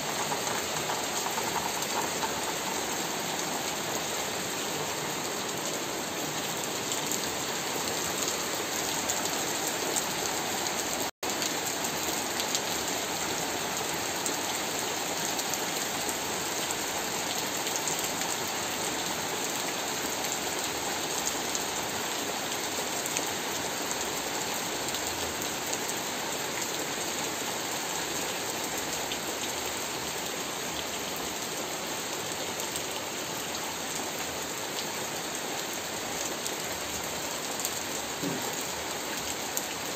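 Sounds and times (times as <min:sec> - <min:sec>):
rain on leaves and puddles: 0:00.0 - 0:39.9.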